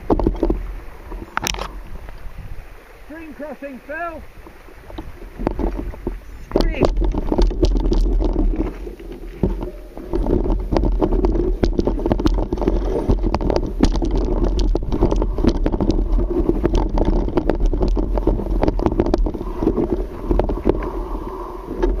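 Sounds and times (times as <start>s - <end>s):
bike rattles and knocks: 0.0s - 0.6s, 5.0s - 20.9s
wind noise on microphone: 0.0s - 3.2s, 4.1s - 22.0s.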